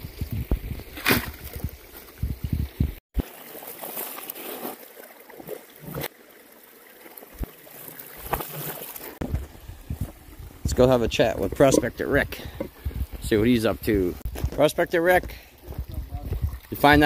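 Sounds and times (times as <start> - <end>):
creek water sloshing: 0.0 - 17.0
stream babbling: 3.2 - 10.2.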